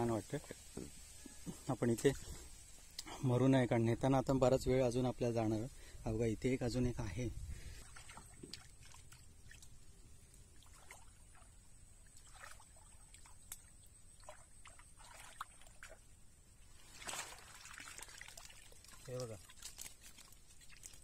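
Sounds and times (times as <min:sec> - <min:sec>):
water sloshing and splashing: 0:07.6 - 0:21.0.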